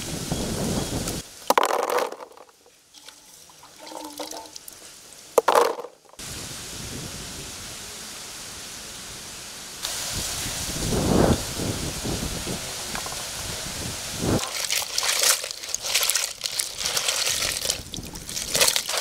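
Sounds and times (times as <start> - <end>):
outdoor background hiss: 0.0 - 19.0
water splashing onto vegetables: 1.5 - 4.8, 14.4 - 19.0.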